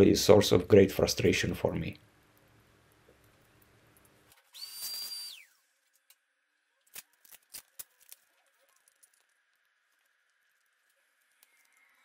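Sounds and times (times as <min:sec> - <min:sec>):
short high squeal: 0:04.5 - 0:05.6.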